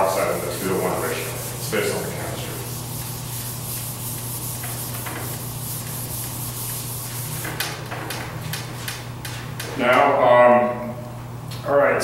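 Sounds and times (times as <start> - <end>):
eraser wiping whiteboard: 0.0 - 9.6
steady low hum: 0.0 - 12.0.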